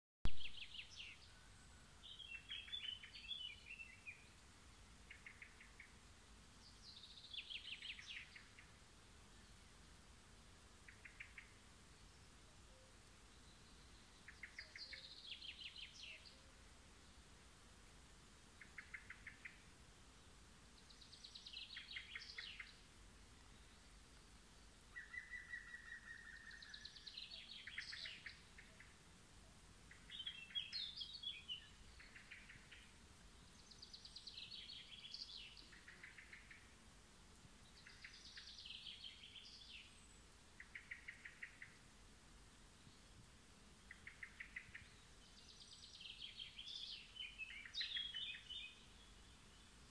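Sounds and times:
songbirds singing trilled phrases: 2.0s - 6.0s, 6.6s - 8.8s, 10.9s - 16.6s, 18.6s - 19.7s, 20.7s - 22.8s, 24.6s - 29.0s, 29.9s - 36.8s, 37.6s - 41.8s, 43.8s - 49.9s.

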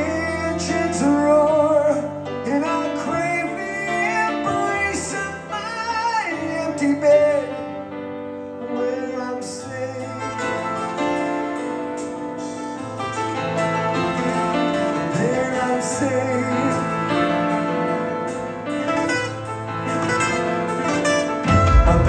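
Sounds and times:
sustained keyboard chords: 0.0s - 22.0s
bass notes: 9.9s - 22.0s
violin playing: 18.8s - 22.0s.

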